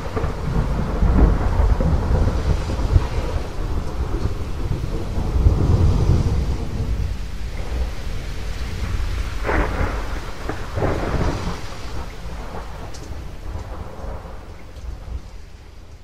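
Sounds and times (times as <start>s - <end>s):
sharp thunder crackles: 0.0s - 16.0s
steady rain: 0.0s - 16.0s
thunder rumbling: 0.0s - 16.0s.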